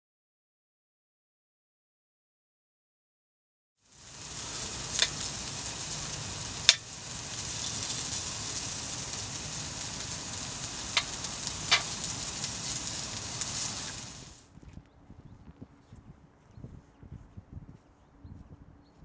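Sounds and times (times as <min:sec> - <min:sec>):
meat sizzling in a frying pan: 0:03.8 - 0:14.4.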